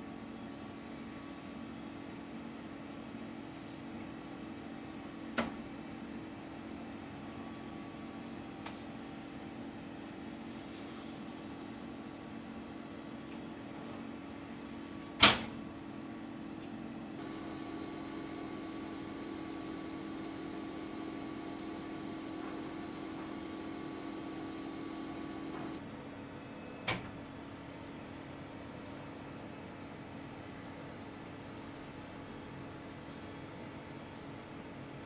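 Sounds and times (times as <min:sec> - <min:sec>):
oven humming: 0:00.1 - 0:26.2.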